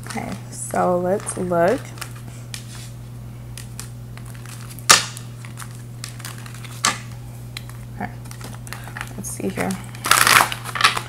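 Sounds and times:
cards being shuffled: 0.0s - 3.0s, 3.6s - 11.0s
deck snapping: 3.6s - 9.2s, 10.0s - 11.0s.

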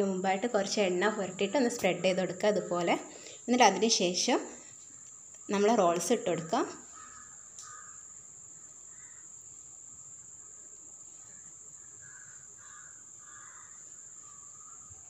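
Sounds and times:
distant bird calls: 6.8s - 8.1s, 11.3s - 15.0s.

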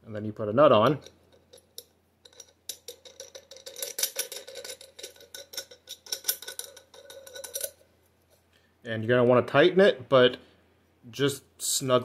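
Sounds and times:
metal nut clicking and rattling: 1.0s - 8.4s.

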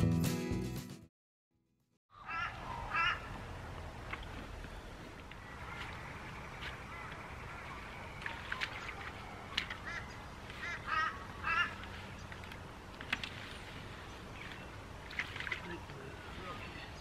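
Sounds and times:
birds honking: 2.1s - 3.4s, 4.7s - 12.4s.

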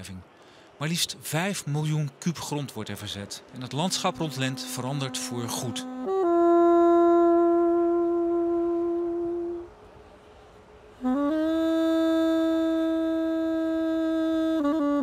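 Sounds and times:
slow wind instrument music: 3.6s - 15.0s.

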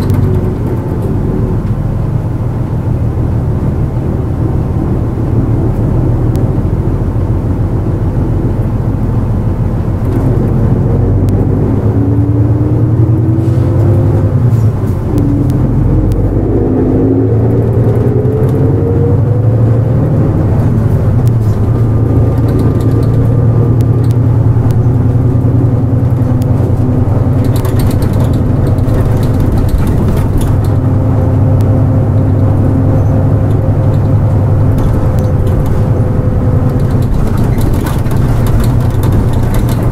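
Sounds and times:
bus diesel engine whining: 0.0s - 39.9s.

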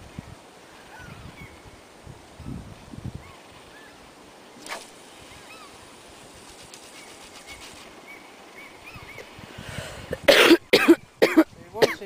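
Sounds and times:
birds chirping: 0.6s - 9.5s
fishing rod swish: 4.6s - 5.5s
fishing line ticking: 4.6s - 8.0s.

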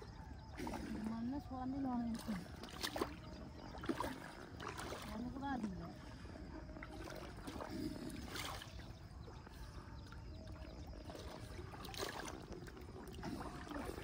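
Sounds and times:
pond water sloshing: 0.0s - 14.0s
soft water splashes: 0.0s - 14.0s.

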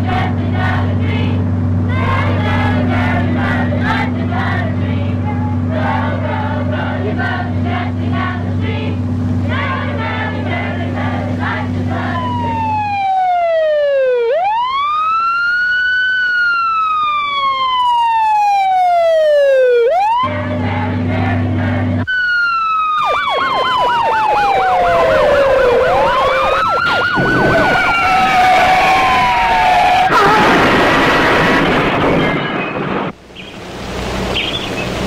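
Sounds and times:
wailing siren: 0.0s - 8.6s, 9.5s - 33.1s
steady low drone: 0.0s - 13.1s, 20.2s - 22.1s
engine and road noise: 0.0s - 35.0s
fast yelping siren: 9.5s - 20.3s, 22.0s - 31.7s.

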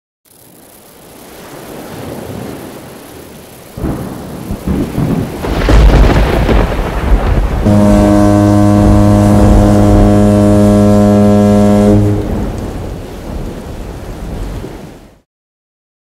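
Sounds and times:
rain hiss: 0.3s - 15.2s
rolling thunder: 3.8s - 14.4s.

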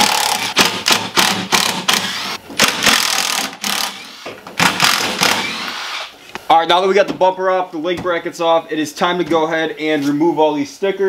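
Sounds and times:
cordless drill bursts: 0.0s - 6.1s.

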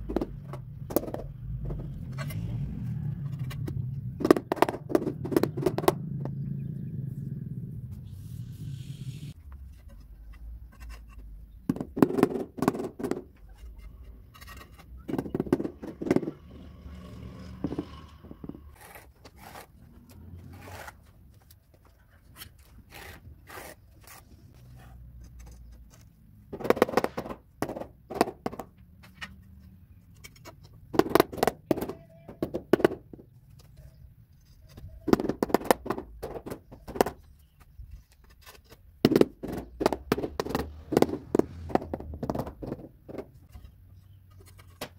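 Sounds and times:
rubber mallet tapping tiles: 4.2s - 6.4s, 26.5s - 28.7s, 30.9s - 33.2s, 39.0s - 43.4s
steel trowel scraping mortar: 16.4s - 21.0s, 22.5s - 25.6s.

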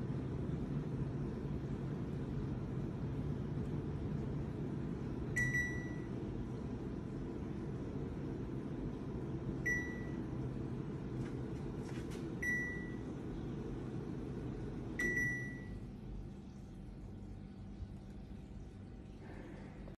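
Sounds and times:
steady low hum: 0.0s - 19.9s
air conditioner short beeps: 5.2s - 6.3s, 9.5s - 10.5s, 12.3s - 13.4s, 14.8s - 15.9s.

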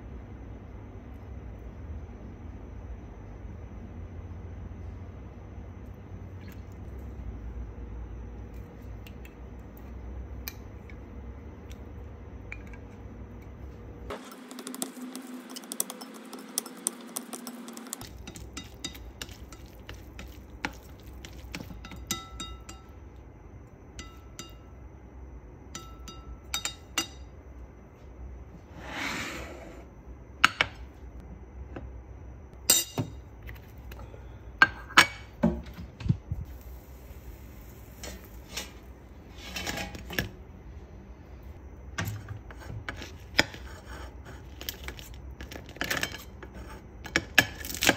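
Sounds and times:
chopsticks clinking on a bowl: 14.6s - 23.0s.

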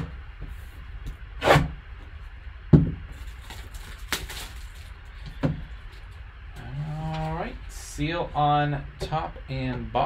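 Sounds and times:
plastic wrap crinkling: 3.1s - 5.2s.

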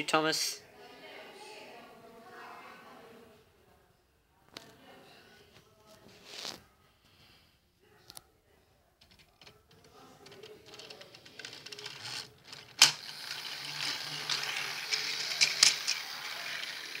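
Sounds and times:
toy train motor whirring: 10.9s - 17.0s.

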